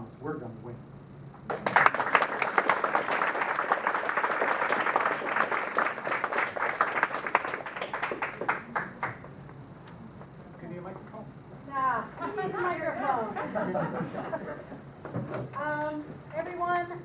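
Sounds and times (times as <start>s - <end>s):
audience applauding: 1.5s - 9.3s.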